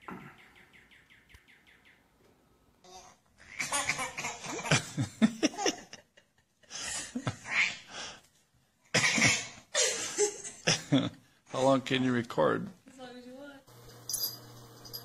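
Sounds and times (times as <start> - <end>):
laughter: 3.4 - 7.5, 8.9 - 11.2.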